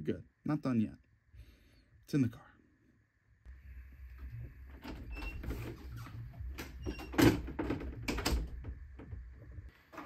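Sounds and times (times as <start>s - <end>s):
door opening: 4.7s - 9.2s.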